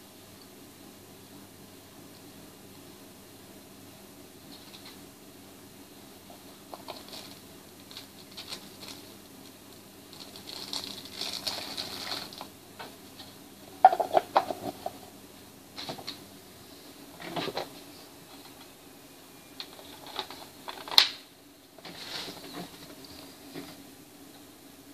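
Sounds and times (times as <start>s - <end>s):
faint steady hum: 0.0s - 24.9s
plastic crinkling: 6.8s - 12.5s.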